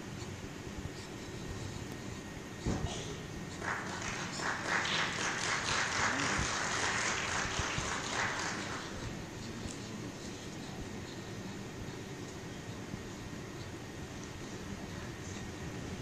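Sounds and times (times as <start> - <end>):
crowd applauding: 3.5 - 9.2.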